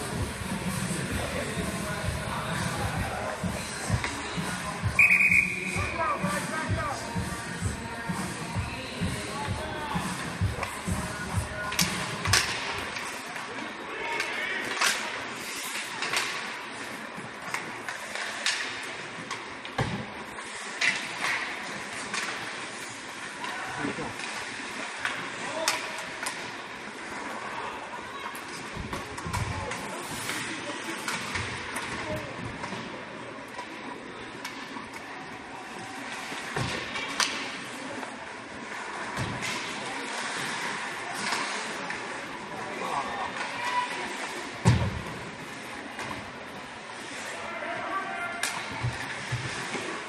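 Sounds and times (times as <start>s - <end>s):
arena sound: 0.0s - 16.2s
skates scraping ice: 0.0s - 50.0s
sticks clacking on puck: 11.6s - 13.2s, 14.1s - 16.5s, 17.4s - 22.6s, 23.4s - 26.5s, 36.3s - 38.1s.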